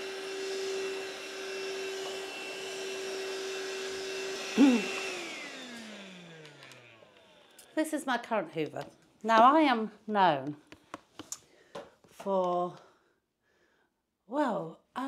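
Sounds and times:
vacuum motor winding down: 0.0 - 7.8
stick vacuum cleaner running: 0.0 - 9.6.

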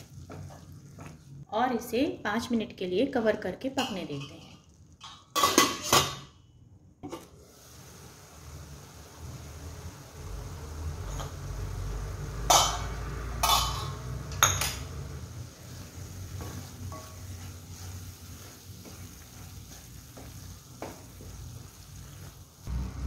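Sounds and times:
spatula scraping a pan: 0.0 - 1.3, 15.6 - 22.3
masala sizzling in a pan: 0.0 - 1.5, 3.6 - 6.3, 7.2 - 23.0
low hum: 22.7 - 23.0.

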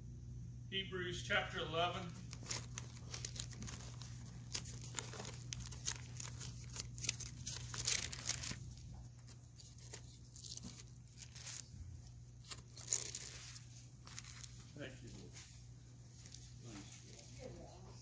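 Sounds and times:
steady low hum: 0.0 - 18.0
paper pages rustling: 2.0 - 17.9.

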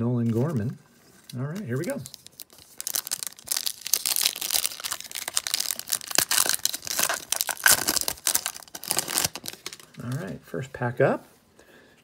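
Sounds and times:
foil wrapper crinkling and tearing: 1.3 - 10.3.

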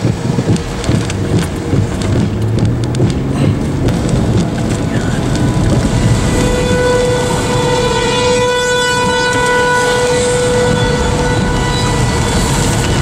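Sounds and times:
rain: 0.0 - 13.0
road noise of moving vehicle: 0.0 - 13.0
wind: 0.0 - 13.0
warning siren steady tone: 5.0 - 13.0.

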